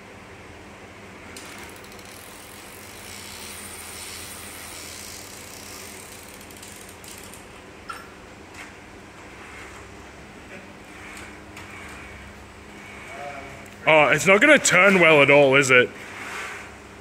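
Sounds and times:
winch motor whirring: 1.4s - 7.4s, 10.8s - 16.8s
fast ratchet ticking: 1.5s - 7.4s.

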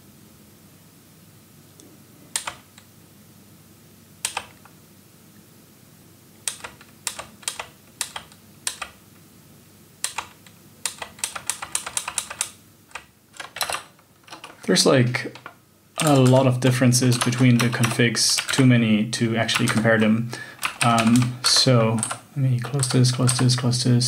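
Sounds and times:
computer keyboard typing: 2.4s - 2.8s, 4.2s - 4.7s, 6.5s - 9.0s, 10.0s - 18.7s, 19.4s - 23.6s.

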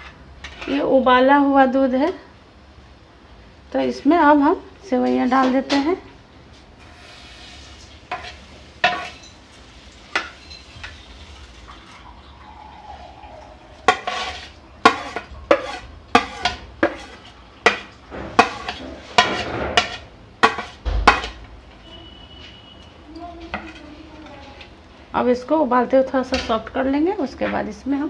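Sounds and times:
spoon clinking and scraping metal pan: 8.1s - 9.5s, 10.1s - 11.0s, 13.8s - 21.4s.

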